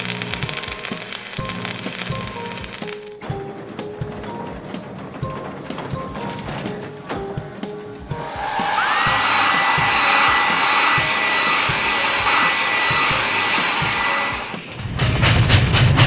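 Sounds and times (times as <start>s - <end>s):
air blower whooshing with whine: 8.1s - 14.8s.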